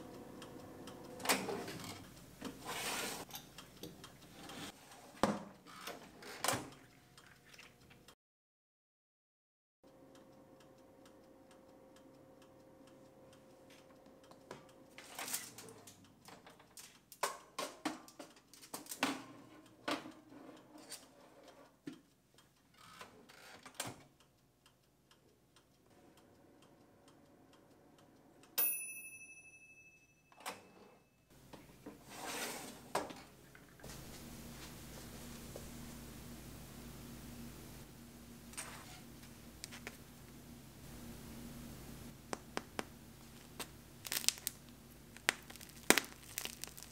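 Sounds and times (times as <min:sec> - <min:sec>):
oven humming: 0:00.0 - 0:04.8, 0:31.4 - 0:46.9
bell-like ding: 0:28.6 - 0:30.9.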